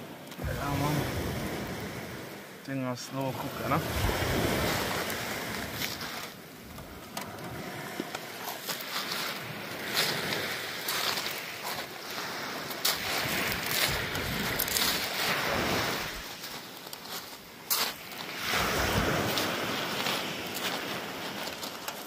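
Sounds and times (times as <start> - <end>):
sea waves washing on shore: 0.0 - 22.0
wind on microphone: 3.6 - 8.5, 12.3 - 16.4, 18.4 - 21.4.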